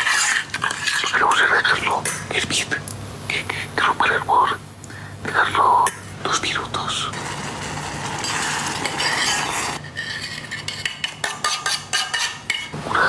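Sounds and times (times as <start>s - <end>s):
metal spoon scraping saucepan: 0.0s - 1.2s, 7.2s - 12.8s.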